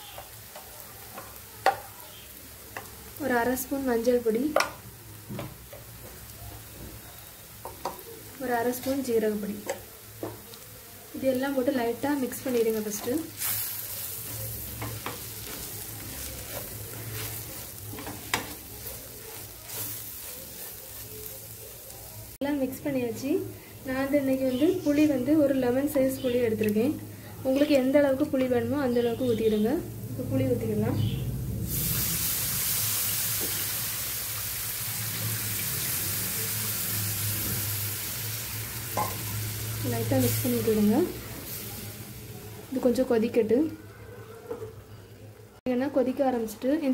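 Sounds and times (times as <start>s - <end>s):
food sizzling in oil: 0.0s - 43.7s
spatula scraping a pan: 13.0s - 21.4s.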